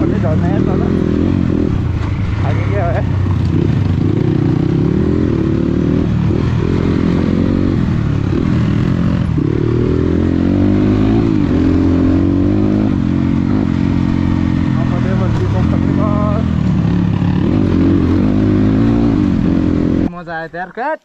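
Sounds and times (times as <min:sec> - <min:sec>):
dirt bike engine revving: 0:00.0 - 0:20.1.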